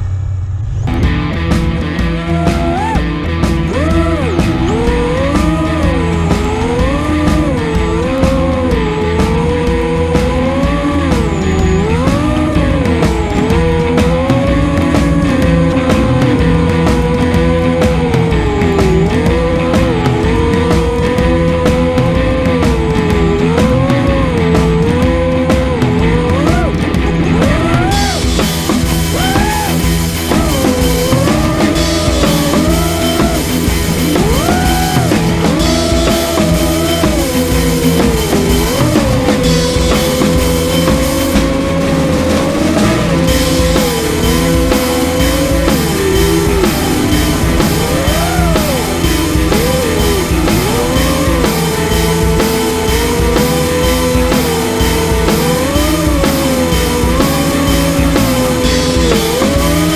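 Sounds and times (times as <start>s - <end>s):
rock music: 0.0s - 59.9s
bending lead guitar melody: 0.9s - 59.9s
drum-kit beat: 0.9s - 59.9s.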